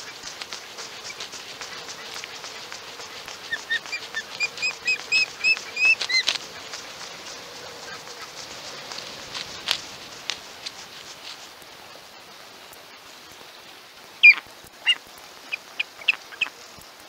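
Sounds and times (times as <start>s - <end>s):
osprey whistled chirps: 0.0s - 11.1s
wings flapping on stick nest: 0.0s - 12.0s.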